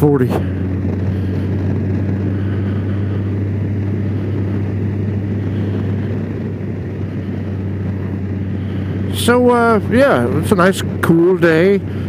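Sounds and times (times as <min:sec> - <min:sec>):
motorcycle engine running: 0:00.0 - 0:12.0
wind and road noise: 0:00.0 - 0:12.0.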